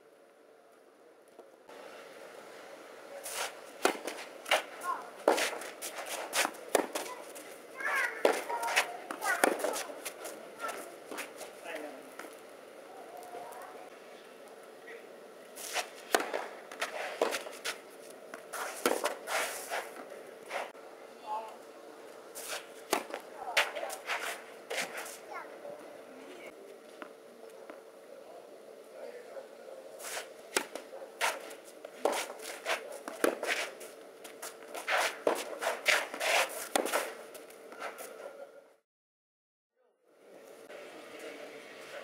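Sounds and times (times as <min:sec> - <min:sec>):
shoes scuffing on clay court: 0:03.2 - 0:12.4, 0:15.6 - 0:20.7, 0:22.3 - 0:25.3, 0:30.0 - 0:38.2
tennis racket hitting ball: 0:03.3 - 0:11.5, 0:15.6 - 0:20.0, 0:22.4 - 0:25.2, 0:30.0 - 0:33.8, 0:34.4 - 0:37.2
ball bouncing: 0:08.2 - 0:11.2.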